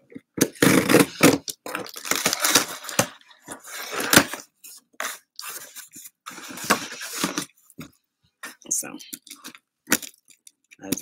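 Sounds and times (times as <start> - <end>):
packing tape being slit: 0.4 - 3.2
cardboard box being opened: 0.6 - 7.5.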